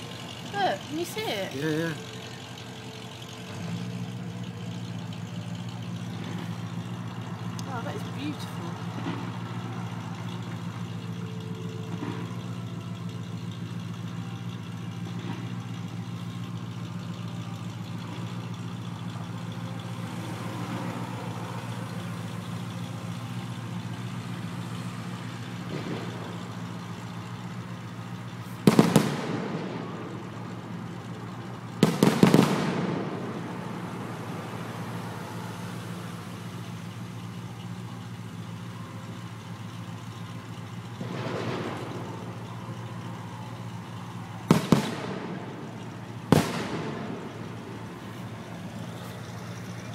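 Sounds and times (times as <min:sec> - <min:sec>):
road traffic hum: 0:00.0 - 0:49.9
crackling firework reports: 0:28.4 - 0:49.9
loud firework bang: 0:28.6 - 0:29.8, 0:31.8 - 0:33.5, 0:44.5 - 0:45.6, 0:46.3 - 0:47.4.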